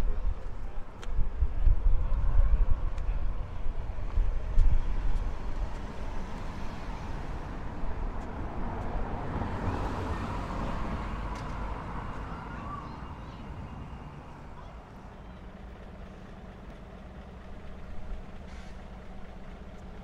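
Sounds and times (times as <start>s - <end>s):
traffic noise: 0.0s - 20.0s
car driving past: 4.8s - 14.6s.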